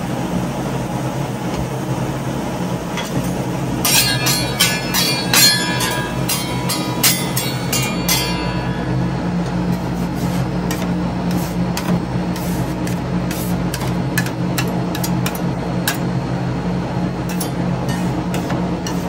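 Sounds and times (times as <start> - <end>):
refrigeration hum: 0.0 - 19.0
metal spatulas tapping and scraping: 3.0 - 9.0, 9.7 - 16.1, 17.3 - 19.0.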